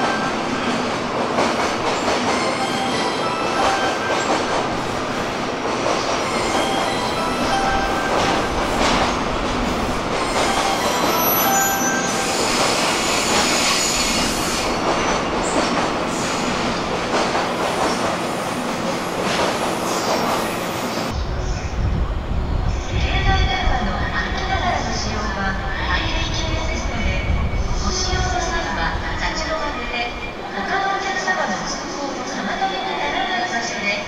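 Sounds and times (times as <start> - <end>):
train rail running noise: 0.0 - 34.0.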